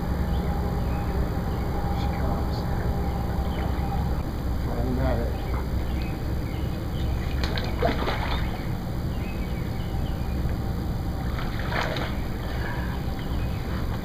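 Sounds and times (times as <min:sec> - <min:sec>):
steady low rumble: 0:00.0 - 0:14.0
water splashing and sloshing: 0:05.3 - 0:14.0.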